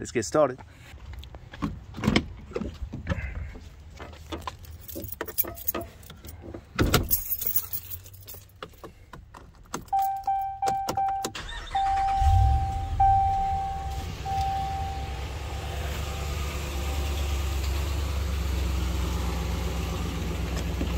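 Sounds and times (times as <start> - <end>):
keys jangling: 4.5 - 11.0
dashboard warning chime: 9.9 - 15.8.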